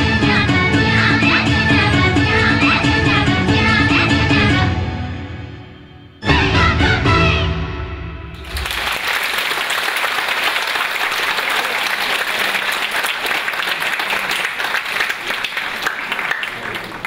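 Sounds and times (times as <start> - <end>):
audience applauding: 8.4 - 17.0.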